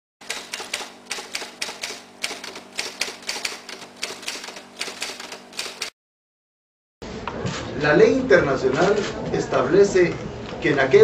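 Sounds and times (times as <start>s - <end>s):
typewriter keys clacking: 0.2s - 5.9s.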